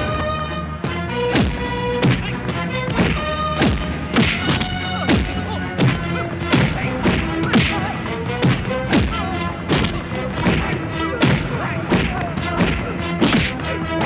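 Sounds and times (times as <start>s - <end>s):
dramatic background music: 0.0s - 14.0s
heavy punch thuds: 1.3s - 14.0s.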